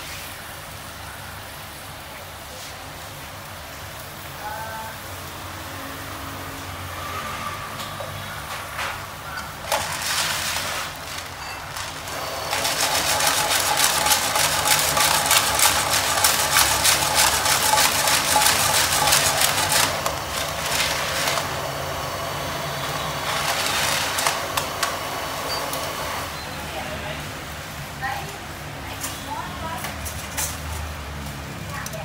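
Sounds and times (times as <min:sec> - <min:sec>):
snails sizzling in frying pan: 0:00.1 - 0:07.1, 0:09.0 - 0:24.9.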